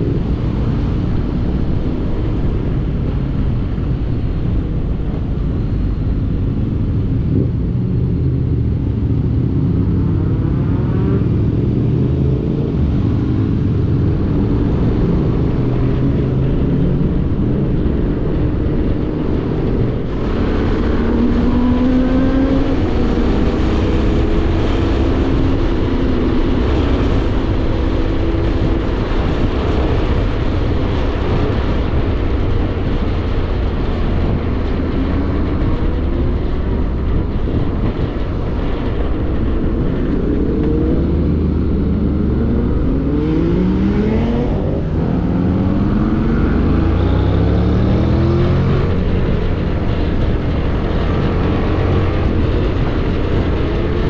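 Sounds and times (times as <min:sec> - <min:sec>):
wind noise: 0:00.0 - 0:54.0.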